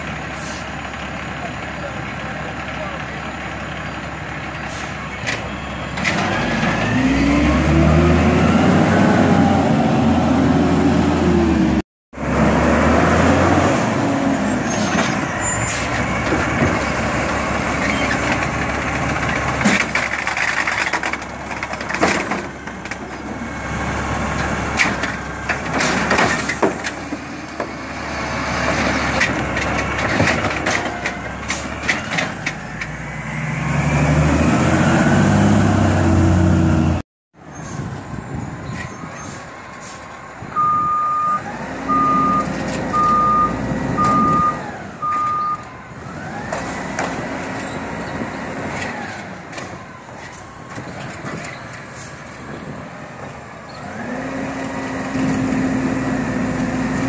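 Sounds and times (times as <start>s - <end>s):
garbage truck engine: 0.0s - 57.0s
clanks and knocks of cart: 17.8s - 23.4s, 24.4s - 27.8s, 29.0s - 33.0s
reversing alarm beeps: 40.6s - 45.6s.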